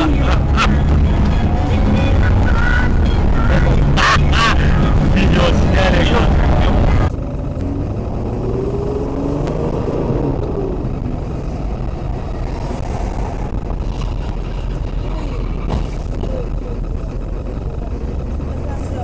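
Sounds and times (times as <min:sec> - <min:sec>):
car engine and road noise: 0:00.0 - 0:19.0.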